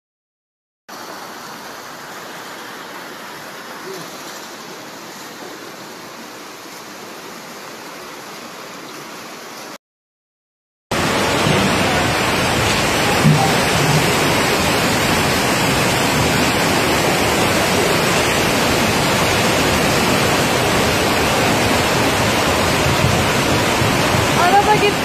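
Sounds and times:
floodwater rushing: 0.9s - 9.8s, 10.9s - 25.0s.

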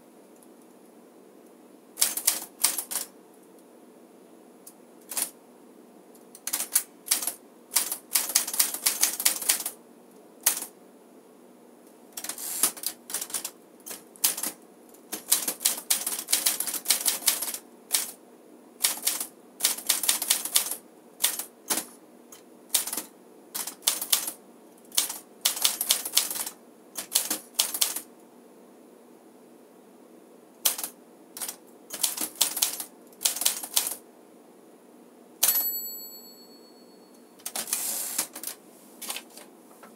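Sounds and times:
manual typewriter typing: 2.0s - 3.1s, 5.0s - 5.3s, 6.4s - 9.8s, 10.4s - 10.7s, 12.2s - 18.2s, 18.8s - 21.9s, 22.7s - 28.0s, 30.6s - 34.0s, 37.4s - 39.4s.

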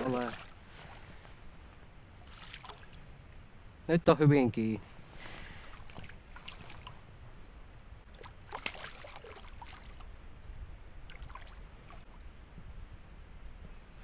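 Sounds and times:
low steady rumble: 0.0s - 14.0s
fish thrashing water splashes: 8.1s - 10.0s.

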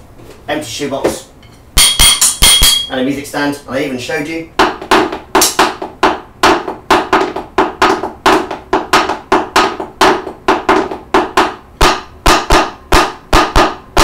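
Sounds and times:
wooden sticks drumming on floor: 1.8s - 2.9s, 4.6s - 14.0s.

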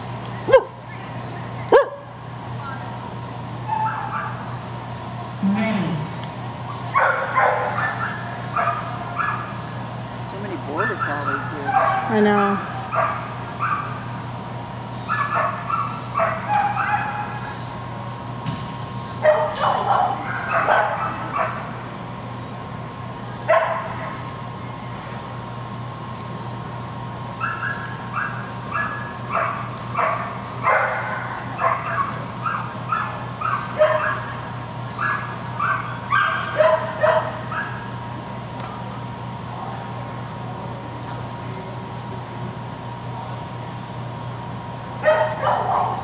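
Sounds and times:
steady low hum: 0.0s - 46.0s
dog barking: 0.5s - 0.8s, 1.7s - 2.1s, 7.0s - 9.5s, 10.8s - 13.9s, 15.1s - 17.2s, 19.2s - 21.6s, 23.5s - 23.9s, 27.4s - 34.3s, 35.0s - 37.8s, 45.0s - 46.0s.

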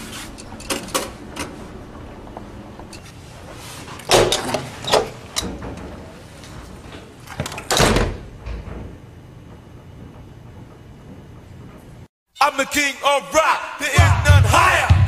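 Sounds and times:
door banging shut: 7.4s - 8.9s.

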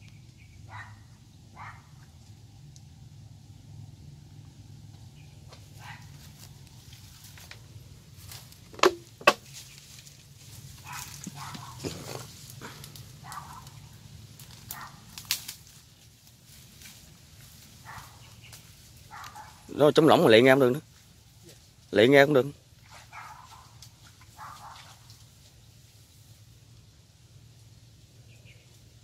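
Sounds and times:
dog barking: 0.7s - 1.9s, 5.8s - 6.1s, 10.8s - 11.9s, 13.2s - 13.8s, 14.7s - 15.0s, 17.8s - 18.2s, 19.1s - 19.7s, 22.9s - 23.8s, 24.4s - 25.0s
leaves crackling underfoot: 4.8s - 29.0s.

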